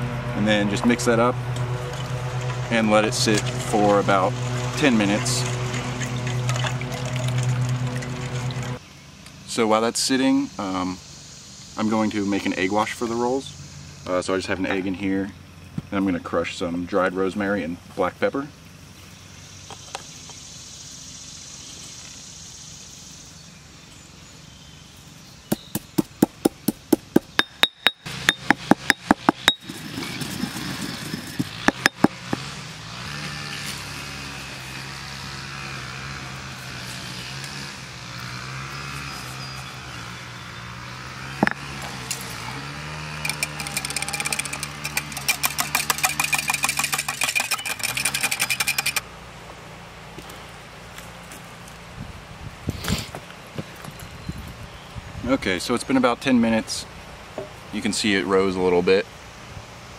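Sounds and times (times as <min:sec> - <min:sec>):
pestle pounding in stone mortar: 0:25.5 - 0:32.4, 0:43.2 - 0:49.0
whisk beating egg in glass bowl: 0:43.3 - 0:49.0.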